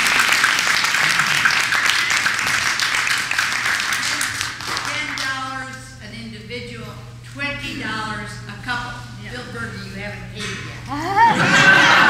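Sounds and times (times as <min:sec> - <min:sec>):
audience applause: 0:00.0 - 0:05.2
people talking: 0:04.0 - 0:12.0.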